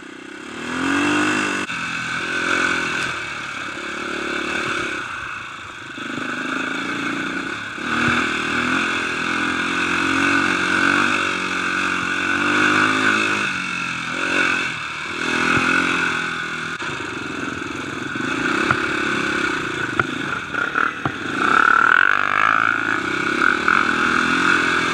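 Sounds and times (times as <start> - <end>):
dirt bike engine revving: 0.0 - 24.9
bike knocking and rattling: 7.9 - 8.8, 15.3 - 16.3, 19.8 - 24.1.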